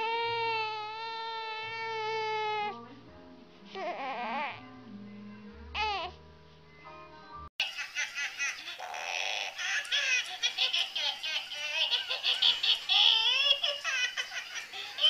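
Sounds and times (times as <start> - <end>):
baby whimpering: 0.0 - 2.8, 3.7 - 4.7, 5.8 - 6.2, 8.8 - 10.3
electronic toy giggling: 7.6 - 15.0.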